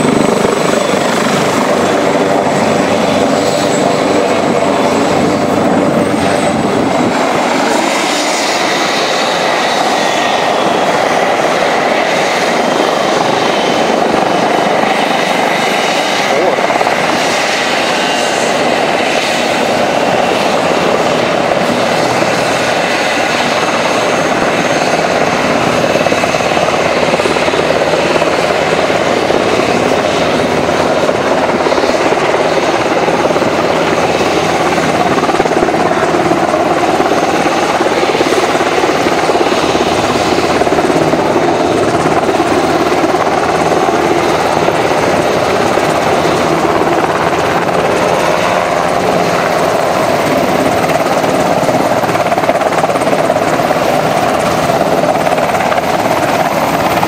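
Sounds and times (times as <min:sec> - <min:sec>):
helicopter rotor and turbine: 0:00.0 - 0:57.0.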